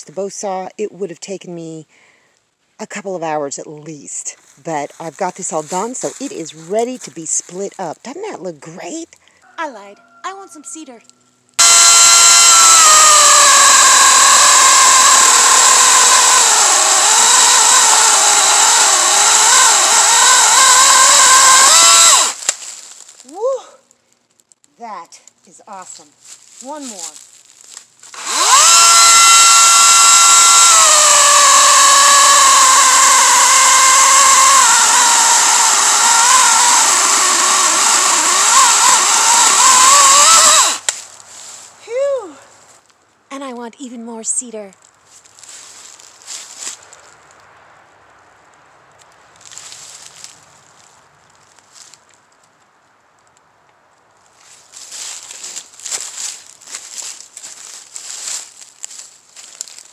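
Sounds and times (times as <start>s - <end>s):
electric chainsaw cutting log: 5.1s - 7.6s, 11.6s - 22.8s, 28.1s - 41.0s, 54.8s - 59.8s.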